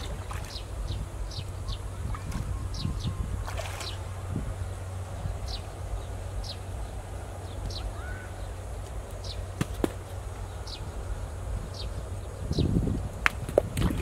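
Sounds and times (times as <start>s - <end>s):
water splashing: 0.0s - 4.4s, 13.2s - 14.0s
bird chirping: 0.0s - 13.0s
low outdoor rumble: 0.0s - 14.0s.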